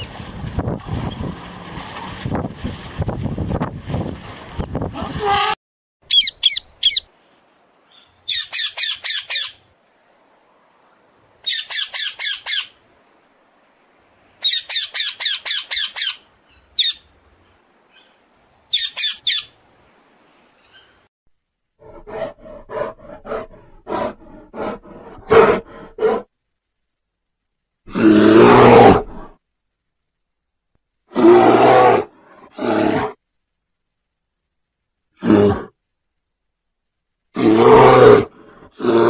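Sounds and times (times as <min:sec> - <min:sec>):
wind noise on microphone: 0:00.0 - 0:05.6
macaw squawking: 0:06.1 - 0:07.1.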